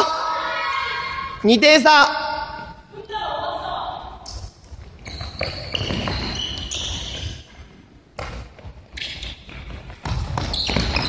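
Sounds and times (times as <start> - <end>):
ball bouncing on wooden floor: 4.3 - 11.0.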